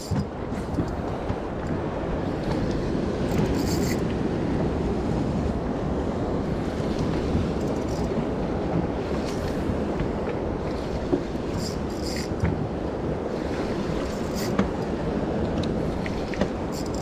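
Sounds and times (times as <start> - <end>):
waves washing against boat: 0.0 - 17.0
wind rushing over microphone: 0.0 - 17.0.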